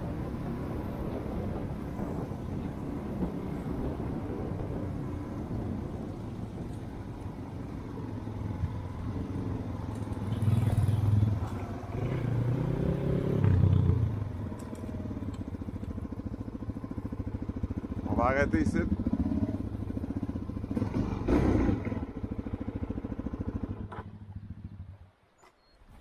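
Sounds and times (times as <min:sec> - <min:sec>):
dirt bike engine running: 0:14.2 - 0:25.0.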